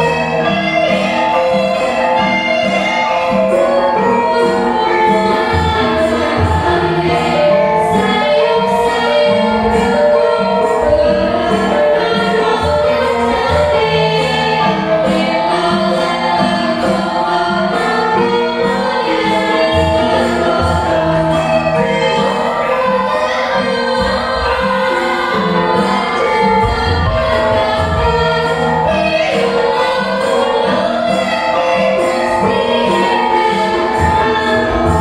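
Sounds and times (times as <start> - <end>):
metallophones and gongs ringing: 0.0 - 35.0
women singing together: 0.0 - 35.0.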